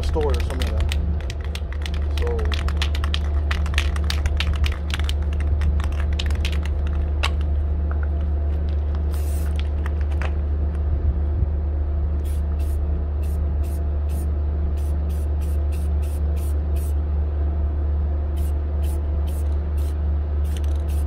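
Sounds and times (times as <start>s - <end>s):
spray can ball rattling: 0.1s - 7.5s, 8.7s - 10.2s, 20.4s - 21.0s
spray can hissing: 9.1s - 9.6s.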